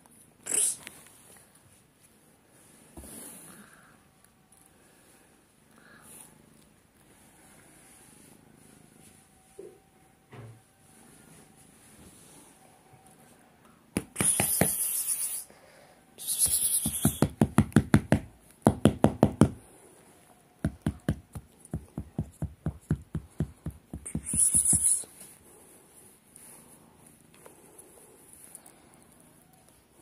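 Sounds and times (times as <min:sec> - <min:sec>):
rapid knocking: 0:17.0 - 0:19.6.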